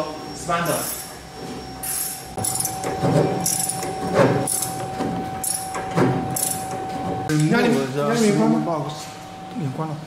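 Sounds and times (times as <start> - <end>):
machine hum: 0.0 - 10.0
spanner scraping and clinking metal: 1.8 - 6.8.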